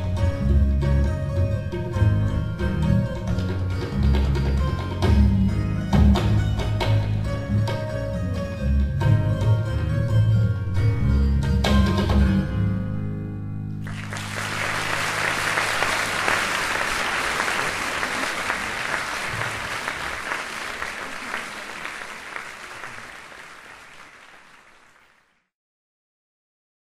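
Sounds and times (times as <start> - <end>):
audience applauding: 13.8 - 25.5.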